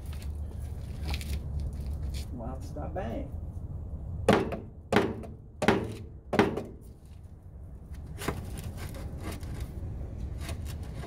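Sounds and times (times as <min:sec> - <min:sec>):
rubber mallet pounding pipe: 0:04.3 - 0:06.8.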